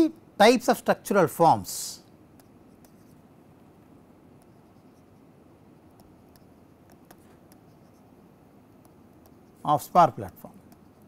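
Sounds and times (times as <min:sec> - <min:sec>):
low room noise: 0:00.0 - 0:11.0
stylus scratching on tablet: 0:02.3 - 0:03.3, 0:04.3 - 0:11.0.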